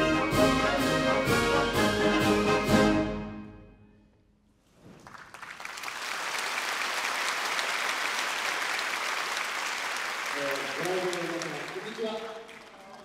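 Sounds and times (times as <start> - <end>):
audience applause: 5.0 - 13.0.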